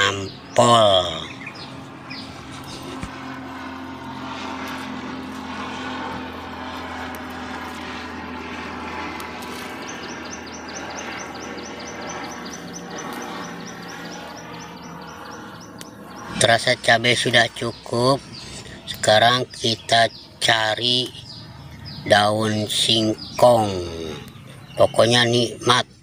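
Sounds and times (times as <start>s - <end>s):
steady motor drone: 0.0s - 26.0s.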